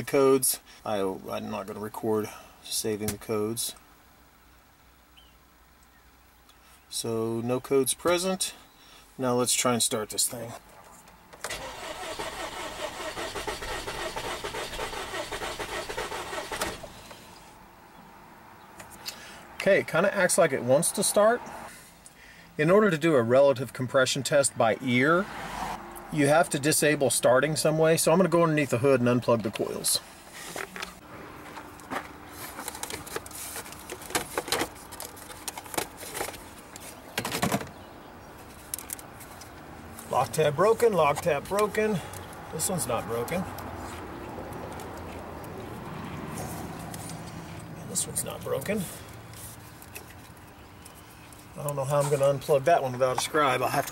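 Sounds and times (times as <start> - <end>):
engine starter cranking: 11.4 - 17.2
plastic clatter: 31.5 - 37.7.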